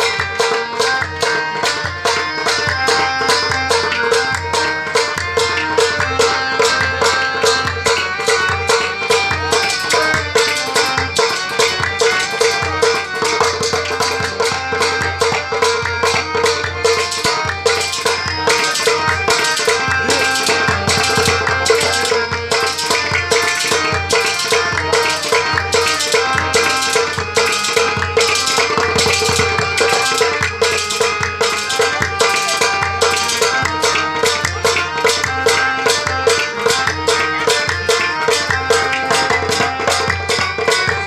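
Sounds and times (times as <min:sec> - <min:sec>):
hand drum beating: 0:00.0 - 0:41.0
harmonium melody: 0:00.0 - 0:41.0.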